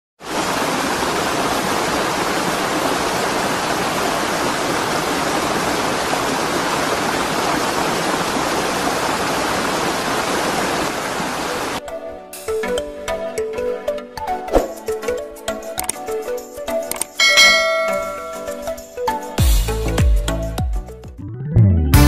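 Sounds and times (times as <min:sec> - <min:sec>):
water pouring down waterfall: 0:00.2 - 0:11.8.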